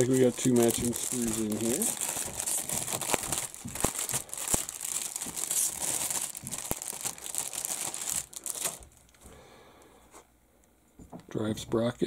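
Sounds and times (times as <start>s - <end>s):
plastic bag crinkling: 0.0s - 9.2s.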